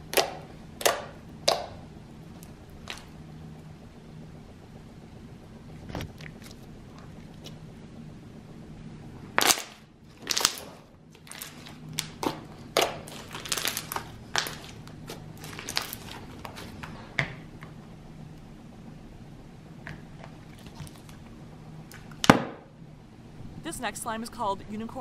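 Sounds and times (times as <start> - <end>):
slime squished by hand: 2.4 - 3.2, 9.4 - 17.0.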